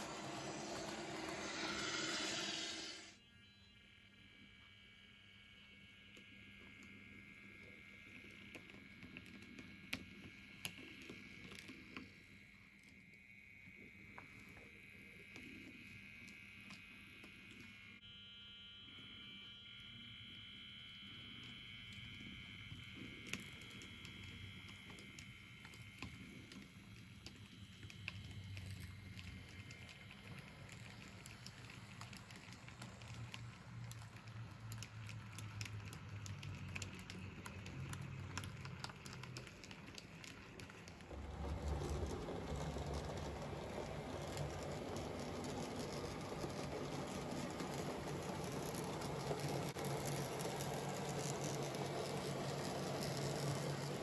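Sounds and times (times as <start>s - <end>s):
model locomotive diesel engine sound: 0.0s - 3.7s, 40.2s - 54.0s
light clicks of model train: 22.8s - 54.0s.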